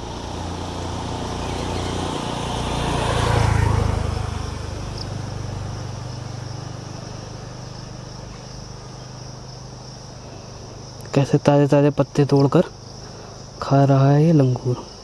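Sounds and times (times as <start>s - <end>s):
vehicle engine passing by: 0.0s - 11.0s
insects droning: 0.0s - 15.0s.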